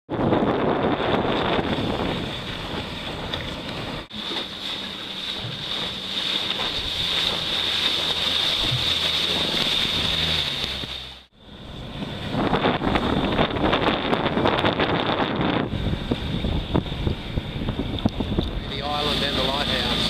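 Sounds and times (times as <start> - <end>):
wind on microphone: 0.1 - 4.1, 11.6 - 20.0
boat motor hum: 0.1 - 20.0
rushing water: 1.2 - 20.0
water spray: 4.1 - 11.3.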